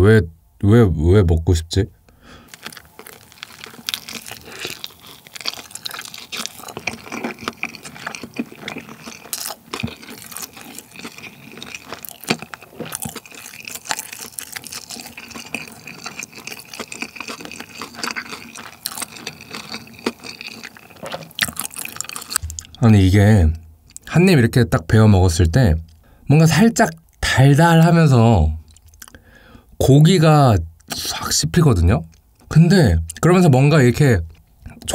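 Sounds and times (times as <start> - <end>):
chewing with mouth clicks: 2.5 - 22.8, 28.6 - 29.2.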